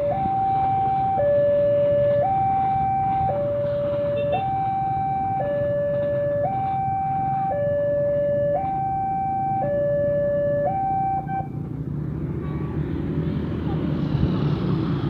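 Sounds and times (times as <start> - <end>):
level-crossing two-tone alarm: 0.0 - 11.5.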